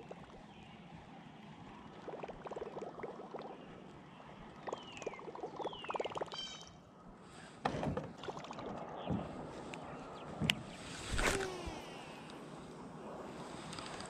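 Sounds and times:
rapid bird chirping: 3.4s - 6.8s
fishing rod and reel handled: 13.6s - 14.0s.

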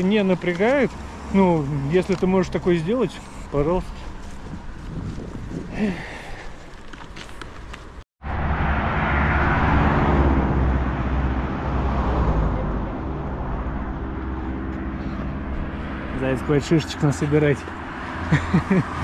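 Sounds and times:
car driving past: 8.2s - 19.0s.

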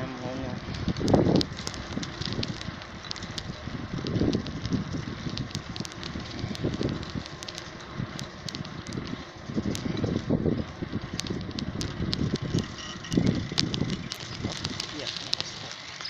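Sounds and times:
low handling bumps: 0.0s - 15.8s
wind on microphone: 0.0s - 15.8s
microphone handling crackles: 0.6s - 15.8s.

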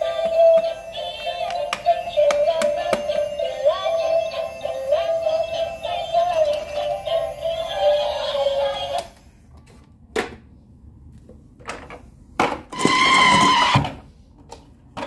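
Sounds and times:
tinny electronic toy song: 0.0s - 9.2s.

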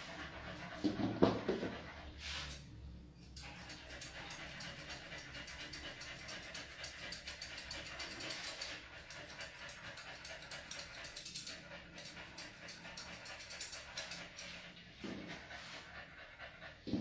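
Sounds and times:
scissors snipping fur: 3.2s - 14.6s.

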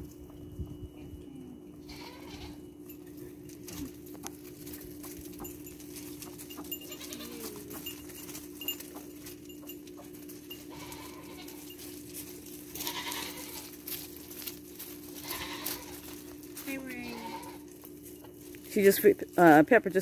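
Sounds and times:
hooves clicking on gravel: 0.0s - 20.0s
goats bleating: 1.8s - 2.7s, 6.8s - 7.9s, 10.6s - 11.8s, 12.7s - 14.0s, 15.1s - 17.8s.

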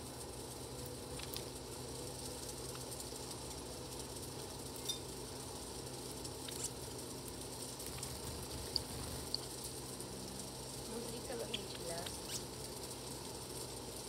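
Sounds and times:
steady low hum: 0.0s - 14.0s
faint clicks: 11.5s - 12.5s.

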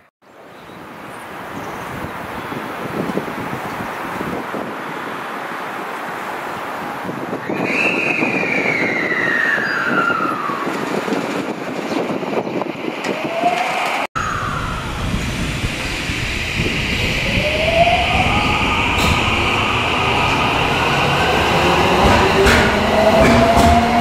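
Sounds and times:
electric train motors whining: 12.8s - 24.0s.

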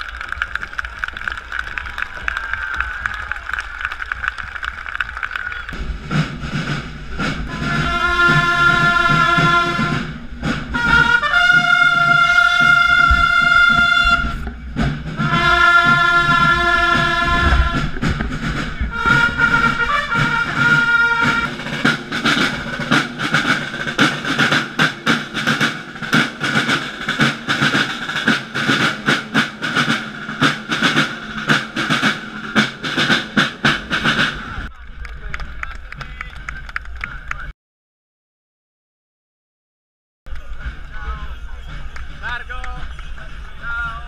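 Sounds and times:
trumpet fanfare blasts: 5.7s - 14.4s, 15.1s - 34.6s
marching side drums beating: 5.8s - 34.7s, 40.4s - 44.0s.

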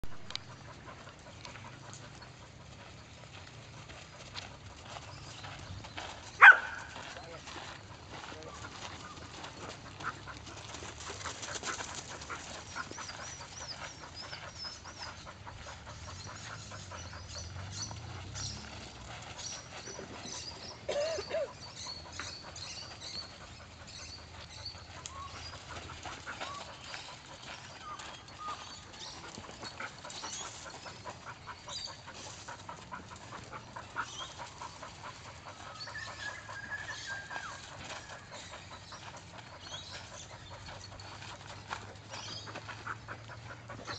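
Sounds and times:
footsteps on gravel: 0.1s - 13.3s
dog panting and whining: 7.2s - 43.9s.

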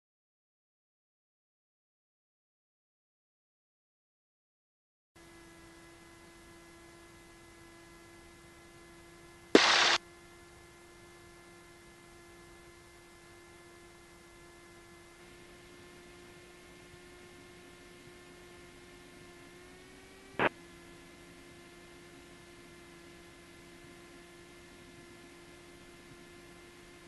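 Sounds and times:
intercom electrical hum and hiss: 9.5s - 10.0s, 20.3s - 20.6s
radio static burst: 9.6s - 10.0s
sharp click: 9.6s - 10.0s.

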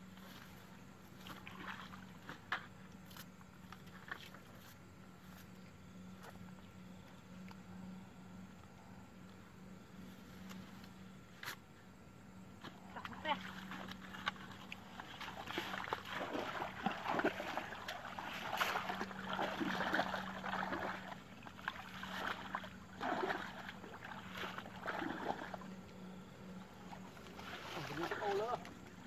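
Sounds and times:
people wading through water: 0.0s - 5.1s, 12.6s - 29.0s
faint low hum: 0.0s - 29.0s.

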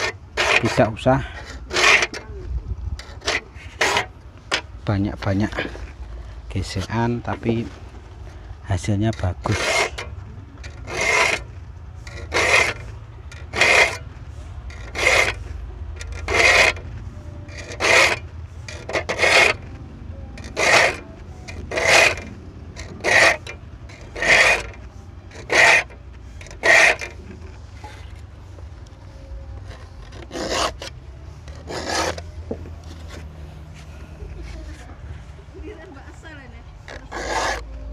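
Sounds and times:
file rasping on saw teeth: 0.0s - 2.2s, 3.0s - 4.1s, 9.1s - 14.0s, 14.7s - 16.8s, 17.5s - 19.7s, 20.4s - 27.2s, 29.6s - 30.9s, 31.5s - 32.2s, 36.9s - 37.7s.

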